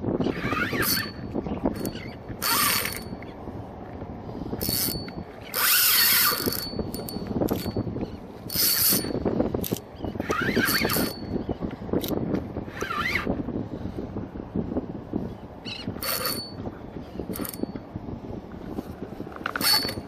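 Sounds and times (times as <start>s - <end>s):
fishing reel ratcheting buzz: 0.3s - 3.2s, 4.6s - 7.9s, 8.5s - 11.3s, 16.0s - 16.6s, 17.3s - 17.8s, 19.5s - 20.0s.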